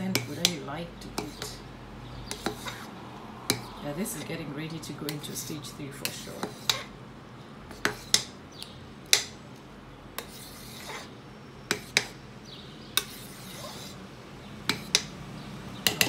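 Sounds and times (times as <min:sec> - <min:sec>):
spatula scraping ceramic pot: 0:00.0 - 0:02.9, 0:03.5 - 0:04.4, 0:05.1 - 0:06.9, 0:07.7 - 0:08.3, 0:10.2 - 0:11.1, 0:11.7 - 0:12.2, 0:13.0 - 0:14.0, 0:14.7 - 0:15.1.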